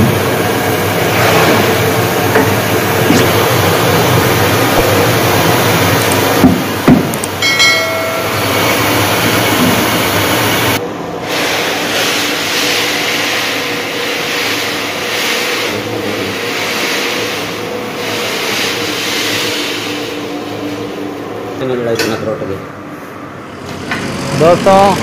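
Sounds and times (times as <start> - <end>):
milling machine drone: 0.0 - 11.2.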